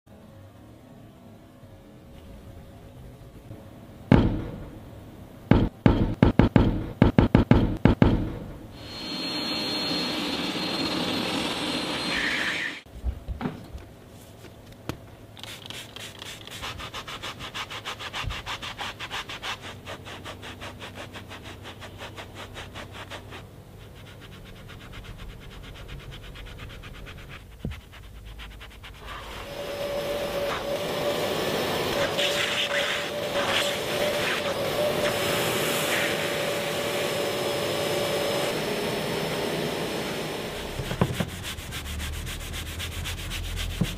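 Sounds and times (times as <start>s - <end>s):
sharp brush strokes: 15.4s - 29.6s, 41.1s - 43.9s
powered scrubbing pad rubbing: 28.5s - 43.9s
extractor suction hum: 28.9s - 43.9s.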